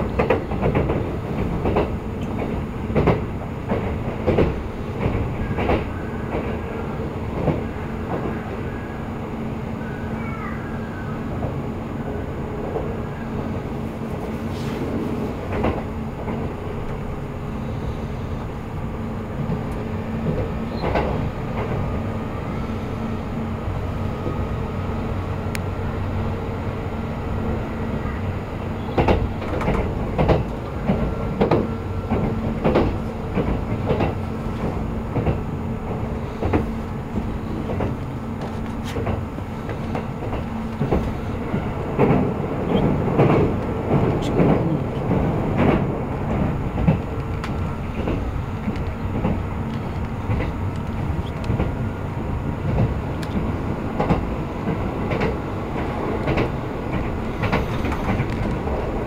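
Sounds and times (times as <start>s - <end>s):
wheels clacking over rail joints: 0.0s - 6.6s, 14.0s - 17.0s, 28.8s - 59.0s
train rumble and hum: 0.0s - 59.0s.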